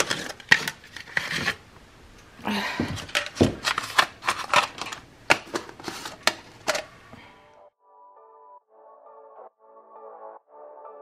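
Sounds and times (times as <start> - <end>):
plastic lids clicking and clattering: 0.0 - 1.6, 2.9 - 7.0.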